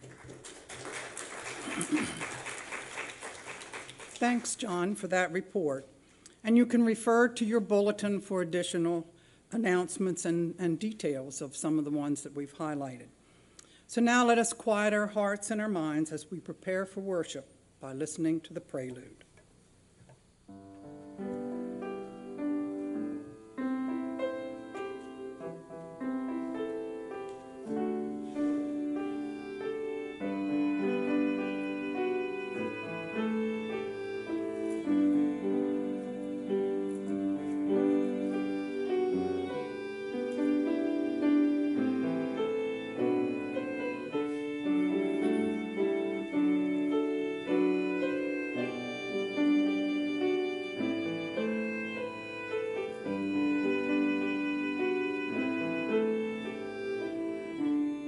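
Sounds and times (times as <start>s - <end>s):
piano: 20.5s - 58.0s
violin: 26.3s - 58.0s.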